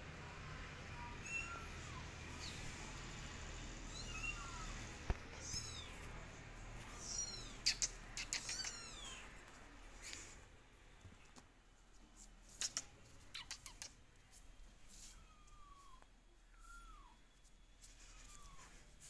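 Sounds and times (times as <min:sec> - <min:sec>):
kittens mewing: 0:03.9 - 0:06.1, 0:06.8 - 0:09.3.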